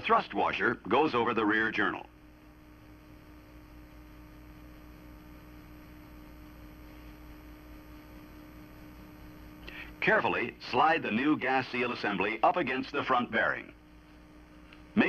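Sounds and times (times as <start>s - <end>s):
low electrical hum: 0.0s - 15.0s
faint hiss: 3.7s - 15.0s.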